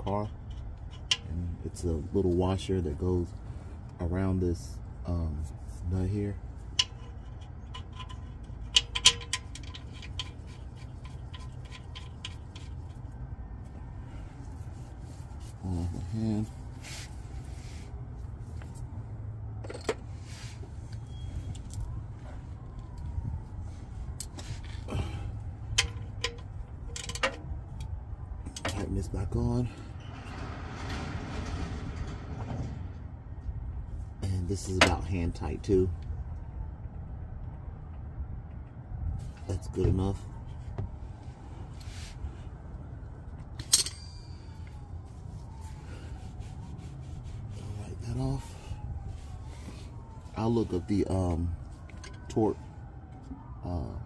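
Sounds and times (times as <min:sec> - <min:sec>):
low steady rumble: 0:00.0 - 0:53.6
sharp metallic clink: 0:43.6 - 0:44.5.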